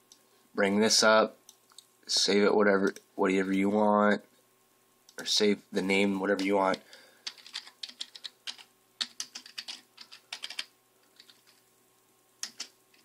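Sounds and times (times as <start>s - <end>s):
computer keyboard typing: 6.7s - 11.6s, 12.4s - 13.0s.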